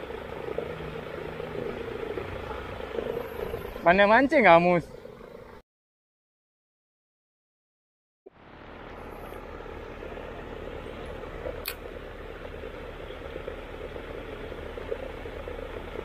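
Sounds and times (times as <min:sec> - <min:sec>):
churning water: 0:00.0 - 0:05.6, 0:08.3 - 0:16.0
paddlewheel aerator humming: 0:00.0 - 0:05.6, 0:08.3 - 0:16.0
sharp click: 0:11.6 - 0:11.8.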